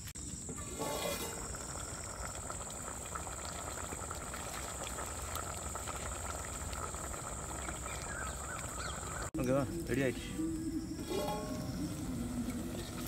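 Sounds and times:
curry bubbling in a pot: 0.2s - 9.4s.

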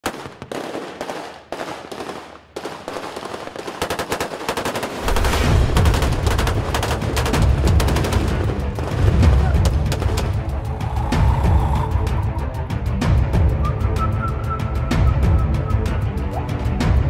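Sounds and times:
automatic gunfire: 0.0s - 8.6s
deep rumble: 5.1s - 13.7s.

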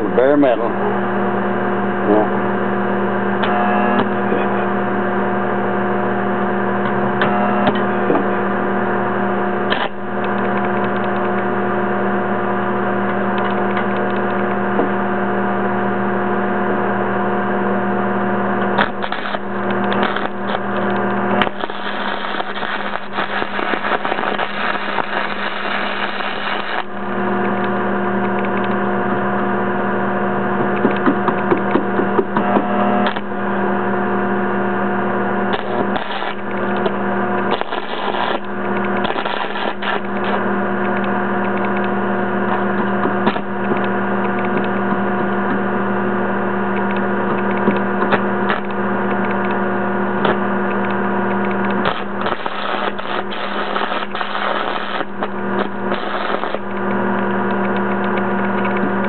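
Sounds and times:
welder humming: 0.0s - 59.0s
welding arc crackling: 8.7s - 12.2s, 18.6s - 28.9s, 35.4s - 42.0s, 46.8s - 59.0s.

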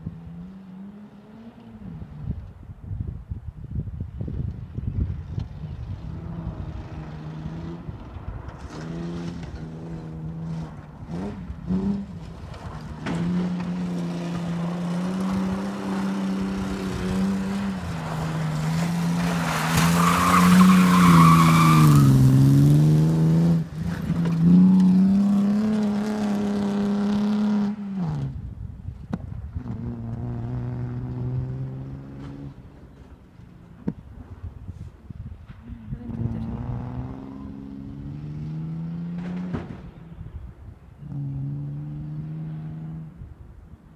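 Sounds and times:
tyres on gravel: 8.1s - 25.8s.

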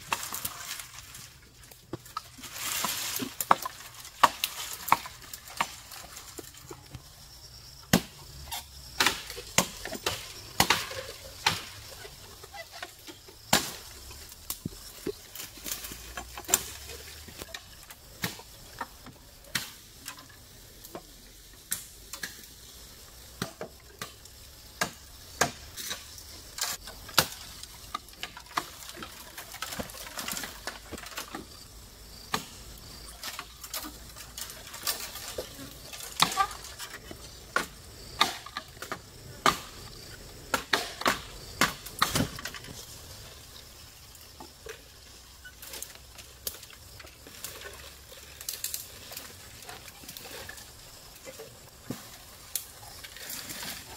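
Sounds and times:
bamboo knocking and clicking: 40.5s - 42.8s.

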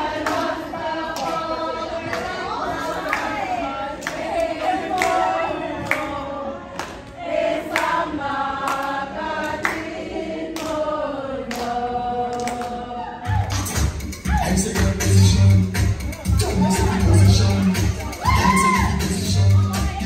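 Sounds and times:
voices singing together: 0.0s - 20.0s.

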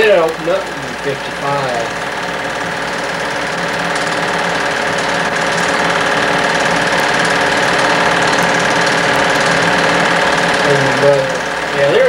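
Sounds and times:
film projector clatter: 0.0s - 12.0s.

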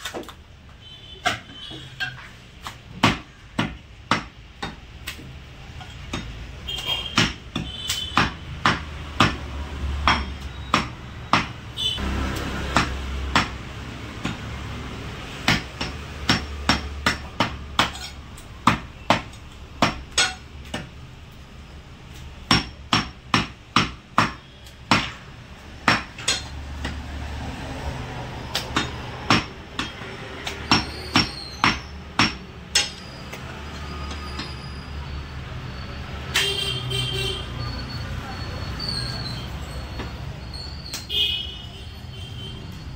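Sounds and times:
cleaver chopping meat on wood: 2.6s - 5.3s, 6.0s - 21.0s, 22.4s - 27.3s, 28.4s - 32.9s.

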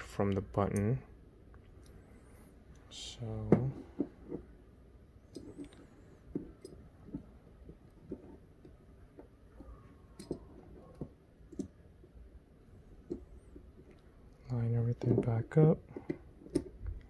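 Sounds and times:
small clicks and taps: 5.3s - 11.8s.

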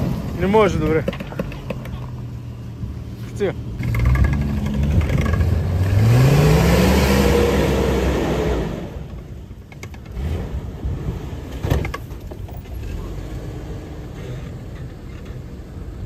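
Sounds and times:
car engine revving hard: 3.8s - 9.1s.

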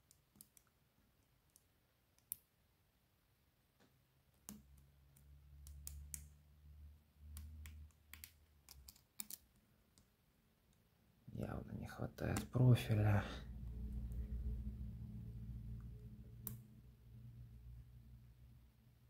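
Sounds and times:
low hum: 12.6s - 18.8s.

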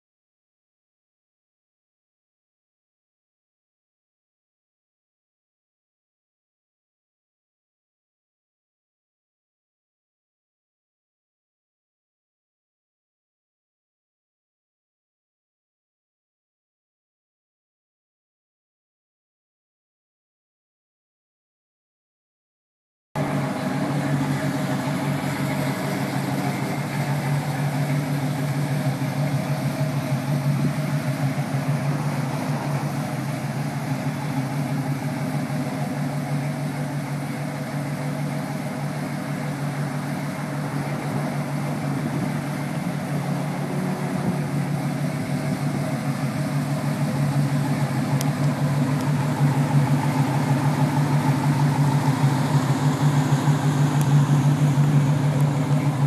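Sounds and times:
car engine idling: 23.2s - 56.0s.

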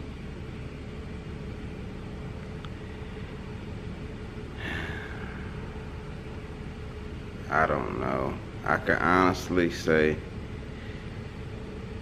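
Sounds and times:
faint constant hum: 0.0s - 12.0s
low background rumble: 0.0s - 12.0s
short breath: 4.6s - 5.6s.

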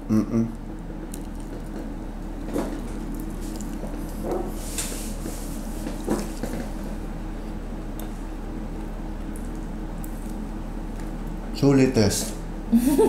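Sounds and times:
low electrical hum: 0.0s - 13.0s
person chewing food: 0.6s - 11.5s.

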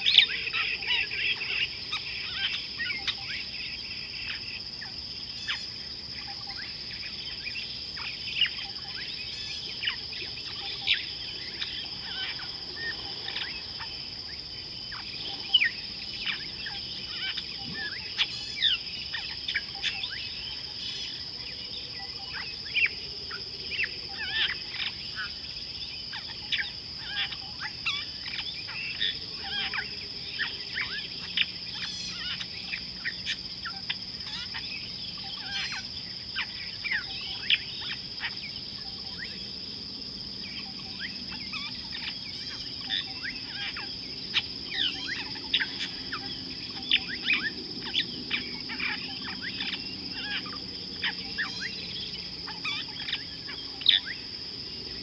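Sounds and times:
bird chirps and calls: 0.0s - 14.1s, 23.8s - 39.4s, 40.5s - 54.2s
high-pitched insect drone: 0.0s - 55.0s.

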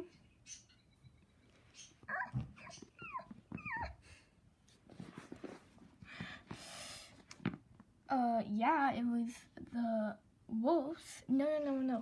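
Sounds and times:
high yelps whimpering: 1.7s - 4.0s.

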